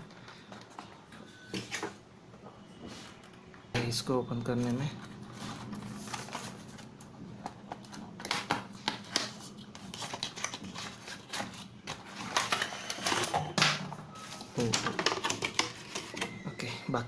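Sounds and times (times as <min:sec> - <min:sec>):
plastic packaging crinkling: 0:04.5 - 0:16.6.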